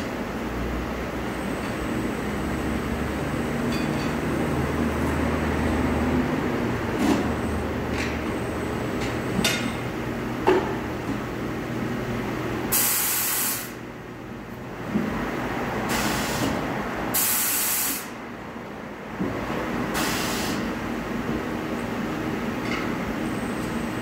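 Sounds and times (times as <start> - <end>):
tyre-changer machine hum: 0.0 - 24.0
compressed air hiss: 12.7 - 13.8, 15.9 - 16.6, 17.2 - 18.2, 20.0 - 20.7.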